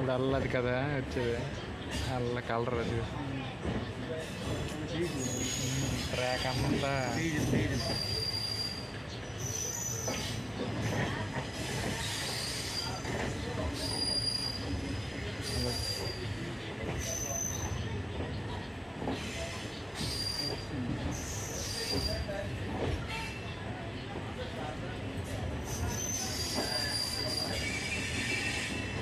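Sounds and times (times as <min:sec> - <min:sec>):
train wheels rumbling on rails: 0:00.0 - 0:29.0
high-pitched wheel squeals: 0:25.7 - 0:29.0.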